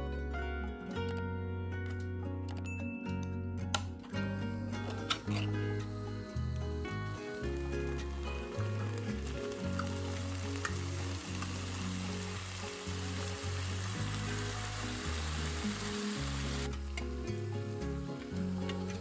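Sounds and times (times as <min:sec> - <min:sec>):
onions sizzling in a frying pan: 0:07.1 - 0:19.0.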